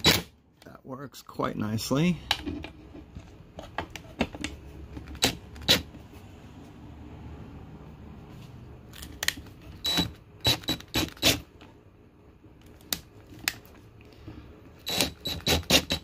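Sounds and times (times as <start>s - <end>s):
drill clicks: 9.2s - 11.4s, 14.8s - 16.0s
cordless drill whining: 9.8s - 11.4s, 14.8s - 16.0s.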